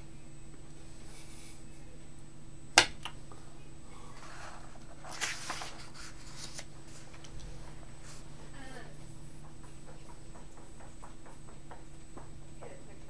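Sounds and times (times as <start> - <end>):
low electrical hum: 0.0 - 13.0
paper rustling: 4.1 - 8.2.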